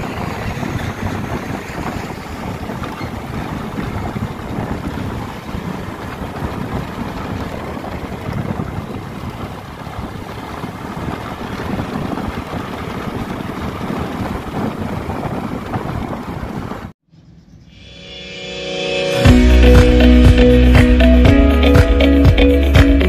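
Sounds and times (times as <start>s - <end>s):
wind rush on microphone: 0.0s - 17.0s
motorbike engine and road noise: 0.0s - 17.7s.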